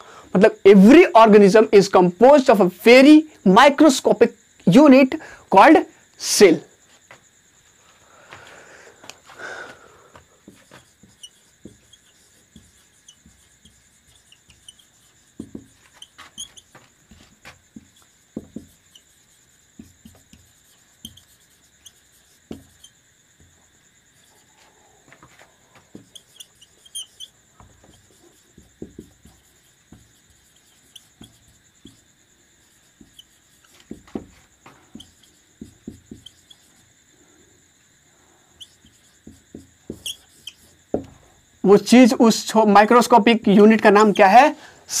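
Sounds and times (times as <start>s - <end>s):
marker squeaking on whiteboard: 10.1s - 37.0s, 38.5s - 41.3s.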